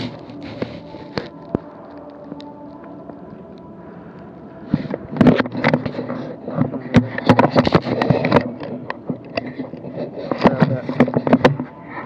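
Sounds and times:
faint steady hum: 0.0s - 12.0s
knocks and clicks: 6.6s - 11.7s.

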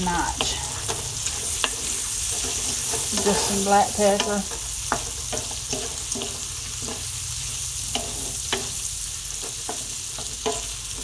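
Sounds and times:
wooden spoon scraping a pan: 0.0s - 7.1s
sausage sizzling in a skillet: 0.0s - 11.0s.

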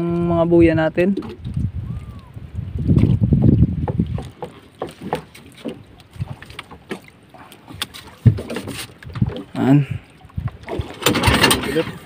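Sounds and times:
knocks of gear on wooden boat: 3.0s - 7.1s, 7.8s - 9.5s, 10.6s - 11.8s.

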